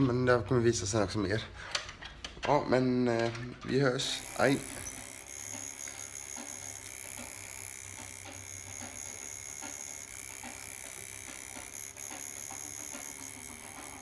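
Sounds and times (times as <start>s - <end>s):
tattoo machine running: 4.0s - 14.0s.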